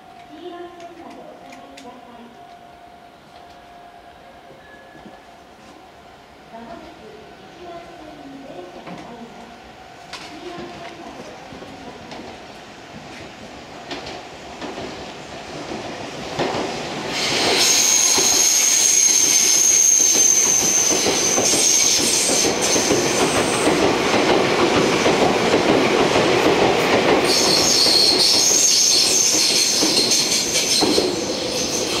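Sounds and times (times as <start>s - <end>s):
train wheels rumbling on rails: 10.0s - 32.0s
high wheel squeal: 17.1s - 23.6s, 27.2s - 32.0s.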